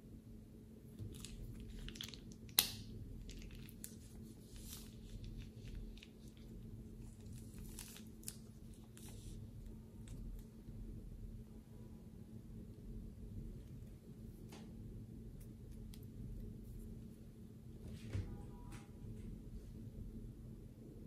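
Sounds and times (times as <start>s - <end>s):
plastic piping bag crinkling: 1.0s - 10.7s.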